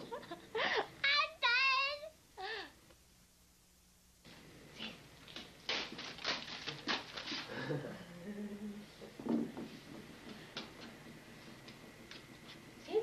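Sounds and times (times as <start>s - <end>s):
wrapping paper rustling: 5.6s - 7.7s
person murmuring: 7.6s - 8.9s.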